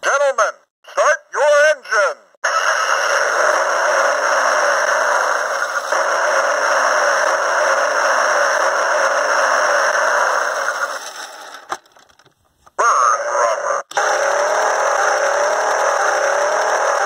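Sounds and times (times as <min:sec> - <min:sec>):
electronic toy sound effect: 0:02.4 - 0:11.5, 0:12.8 - 0:14.5.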